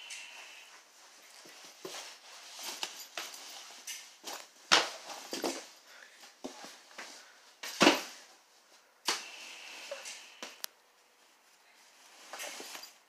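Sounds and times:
fabric bag rustling: 0.2 - 5.8.

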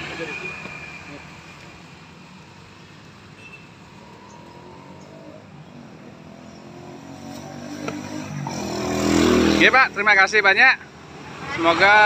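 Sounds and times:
vehicle engine approaching: 3.8 - 10.4.

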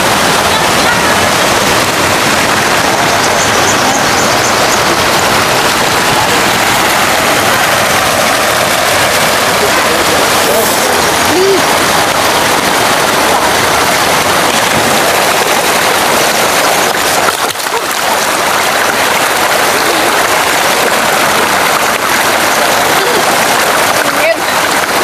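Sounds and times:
water splashing into pool: 0.0 - 25.0.

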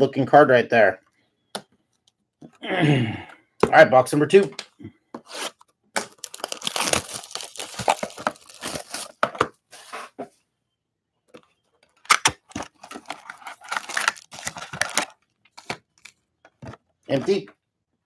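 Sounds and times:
plastic wrapping ripping and rustling: 5.3 - 9.2, 12.0 - 16.1.

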